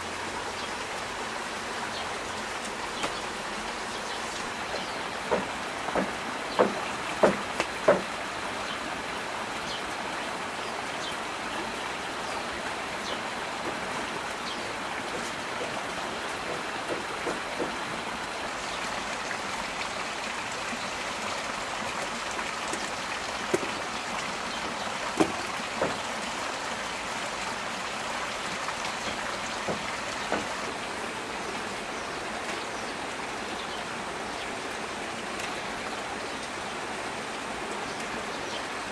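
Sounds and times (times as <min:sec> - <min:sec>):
heavy rain hissing: 0:00.0 - 0:38.9
sharp knocks: 0:04.7 - 0:08.1, 0:16.4 - 0:17.8, 0:25.2 - 0:26.0, 0:29.6 - 0:30.6.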